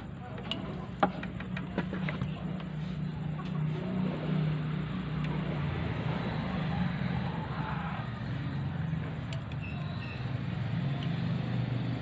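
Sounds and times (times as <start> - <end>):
light metal clicks: 9.2 - 10.0.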